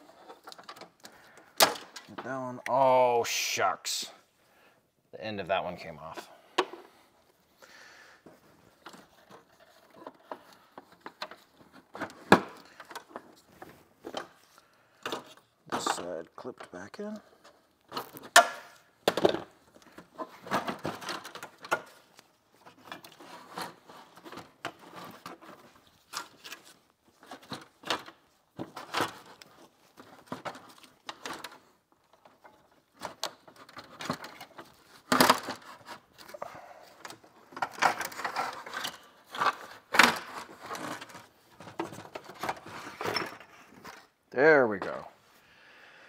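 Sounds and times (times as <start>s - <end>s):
plastic clicks knocks and rustling: 8.7s - 16.0s, 17.8s - 36.4s, 37.0s - 44.1s.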